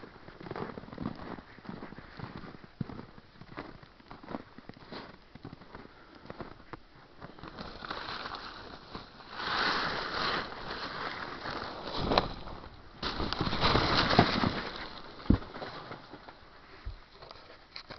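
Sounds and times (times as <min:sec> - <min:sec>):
tarp rustling and crinkling: 0:07.2 - 0:17.7.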